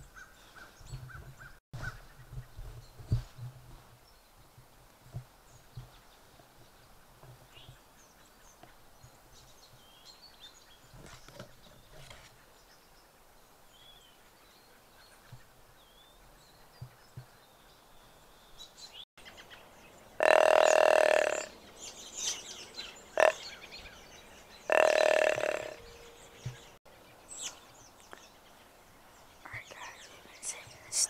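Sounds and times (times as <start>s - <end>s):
hunting call blasts: 20.2s - 21.5s, 23.2s - 23.4s, 24.7s - 25.9s
faint bird chirps: 20.2s - 31.0s.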